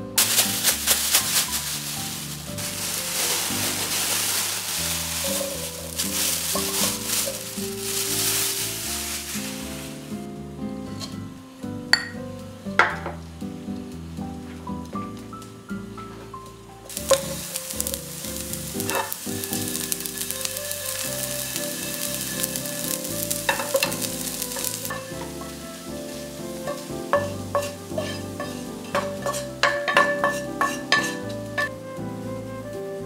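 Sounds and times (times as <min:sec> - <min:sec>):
food sizzling in oil: 0:00.2 - 0:11.3, 0:16.9 - 0:31.9
spatula clicking and scraping pan: 0:17.0 - 0:21.0, 0:21.9 - 0:25.6, 0:26.6 - 0:31.7.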